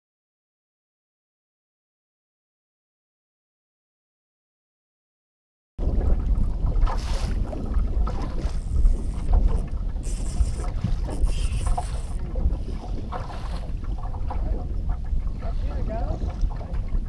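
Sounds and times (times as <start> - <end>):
waves lapping at boat hull: 5.8 - 17.0
wind buffeting microphone: 5.8 - 17.0.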